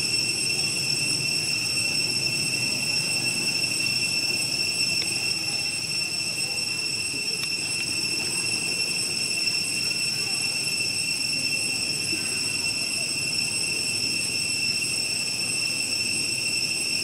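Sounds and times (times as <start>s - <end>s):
cicadas droning: 0.0s - 17.0s.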